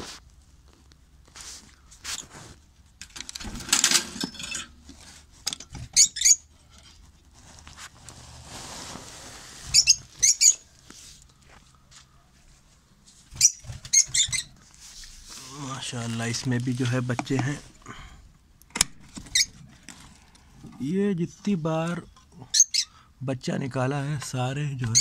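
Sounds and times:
rustling and clicks in cage: 0.1 - 6.1
lovebirds chirping: 5.9 - 6.5, 9.7 - 10.8, 13.3 - 14.6, 22.4 - 23.1.

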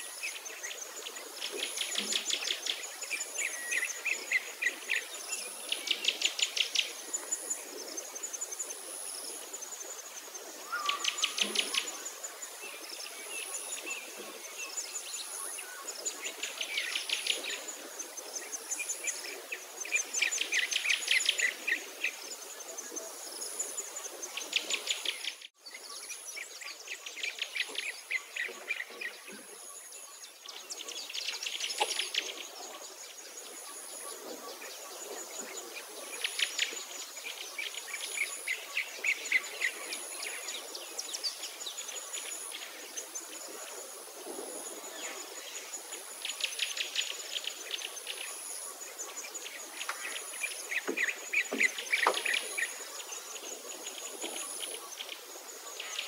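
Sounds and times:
insect chirr: 0.0 - 56.0.

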